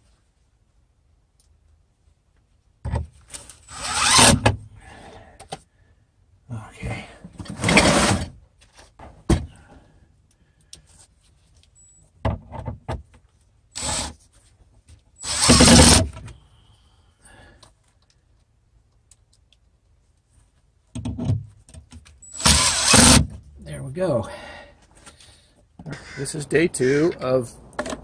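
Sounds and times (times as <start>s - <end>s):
cordless drill driving screws: 3.7s - 4.5s, 13.8s - 14.1s, 15.2s - 16.1s, 22.2s - 23.3s.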